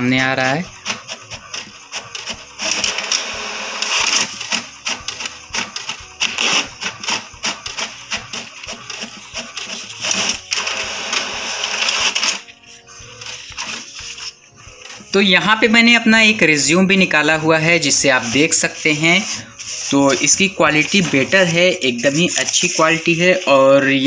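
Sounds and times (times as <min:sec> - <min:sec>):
inkjet printer clicking and whirring: 0:00.6 - 0:15.3.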